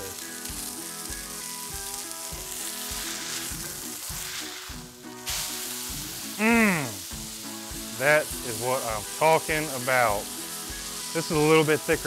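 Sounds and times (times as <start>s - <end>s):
burger patty sizzling in skillet: 0.0s - 12.0s
spatula scraping skillet: 2.0s - 6.4s.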